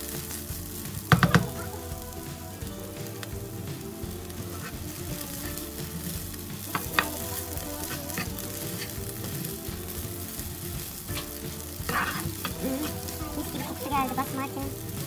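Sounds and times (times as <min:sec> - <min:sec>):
rice and chickpeas frying in a pan: 0:00.0 - 0:15.0
spatula knocking against a pan: 0:01.1 - 0:01.7
plastic spatula stirring and scraping: 0:03.1 - 0:15.0.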